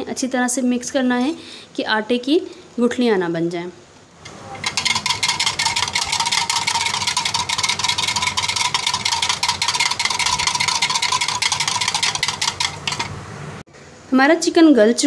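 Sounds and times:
whisk clicking against glass: 4.6s - 13.2s.

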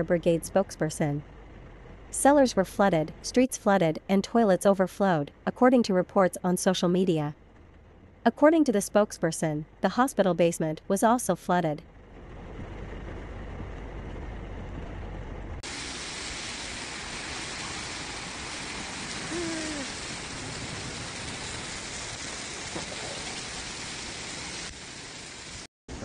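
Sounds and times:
torrential rain pouring on a street: 15.6s - 25.7s.

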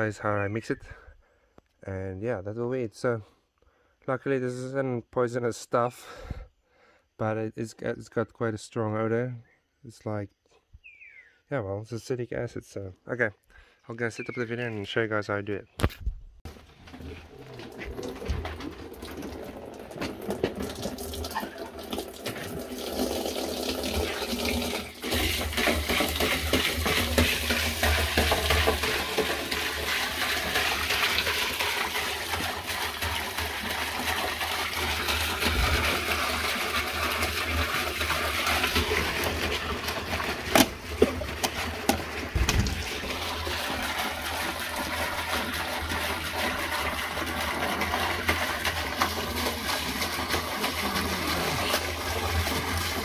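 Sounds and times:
liquid pouring into plastic drum: 16.5s - 53.0s.

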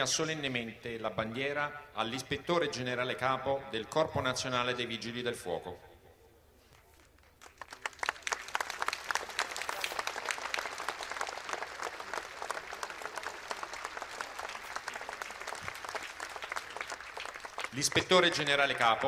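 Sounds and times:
crowd applauding: 7.2s - 19.0s.

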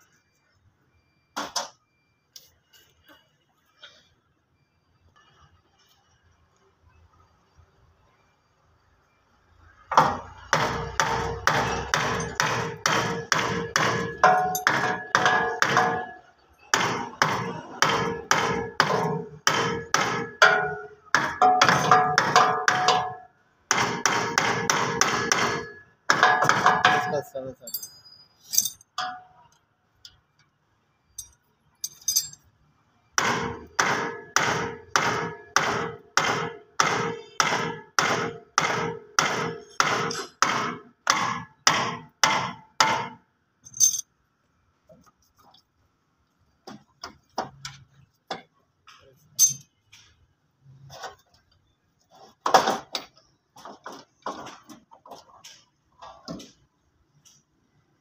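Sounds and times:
metallic clinks and knocks: 14.0s - 16.0s, 26.4s - 29.6s, 31.2s - 32.5s, 43.6s - 44.1s, 49.2s - 50.0s
light metallic clinks: 27.6s - 29.2s, 31.2s - 32.4s, 43.7s - 44.1s, 49.4s - 49.7s
tool striking metal fittings: 49.4s - 49.7s.

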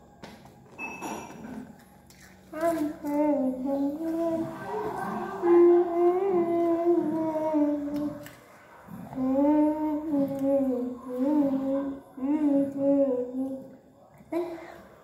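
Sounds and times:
girl humming: 2.6s - 8.2s, 9.1s - 13.7s.

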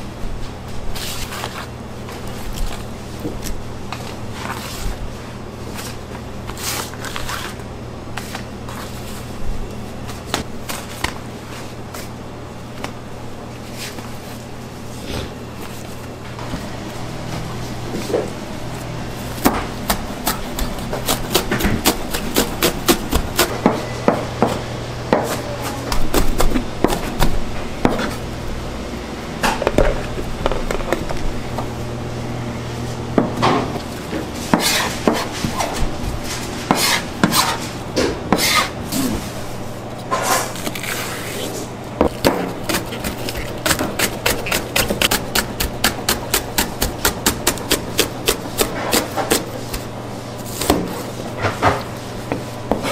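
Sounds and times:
low machine hum: 0.0s - 52.9s
chopping on cutting board: 19.4s - 28.1s.

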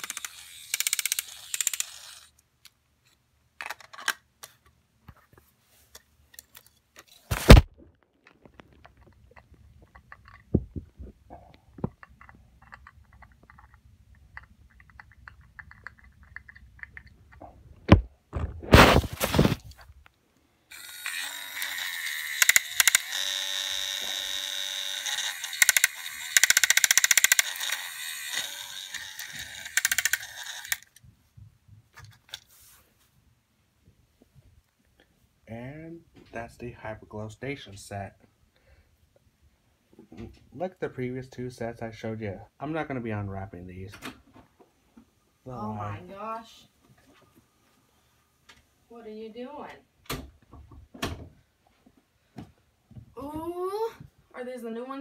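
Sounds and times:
plastic track pieces clicking: 0.0s - 2.8s, 11.9s - 17.4s, 20.8s - 31.0s.

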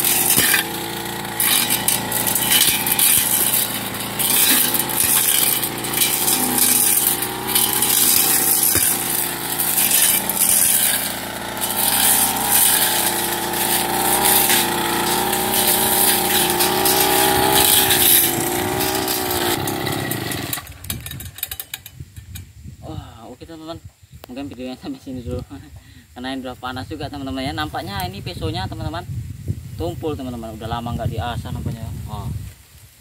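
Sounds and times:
blade cutting through grass: 0.0s - 21.6s
brush cutter engine at high revs: 0.0s - 21.6s.

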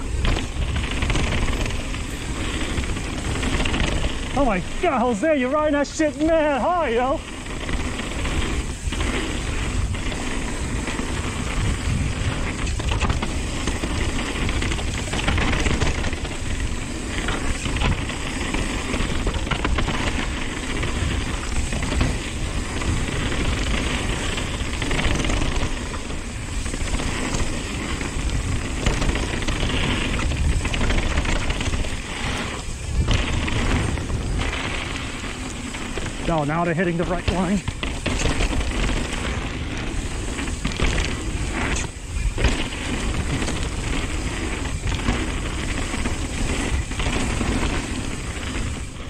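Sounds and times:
bike knocking and rattling: 0.0s - 49.0s
tyres on dirt: 0.0s - 49.0s
wind rushing on microphone: 0.0s - 49.0s.

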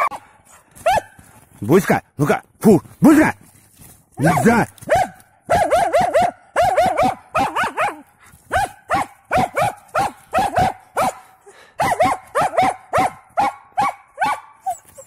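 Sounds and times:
dog barking sharply: 4.2s - 11.2s, 11.8s - 14.5s.

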